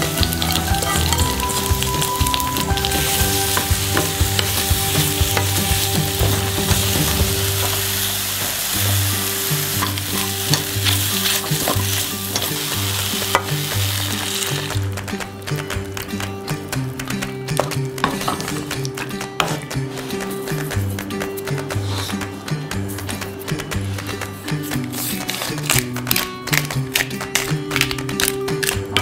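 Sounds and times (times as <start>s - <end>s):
vegetables sizzling in oil: 0.0s - 14.8s.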